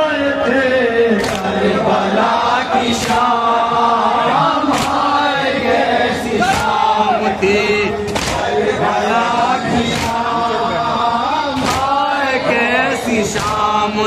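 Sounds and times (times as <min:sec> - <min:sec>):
men chanting in unison: 0:00.0 - 0:14.0
chest-beating slaps: 0:04.7 - 0:05.1, 0:06.4 - 0:06.9, 0:08.1 - 0:08.5, 0:09.9 - 0:10.2, 0:11.6 - 0:12.0, 0:13.4 - 0:13.7.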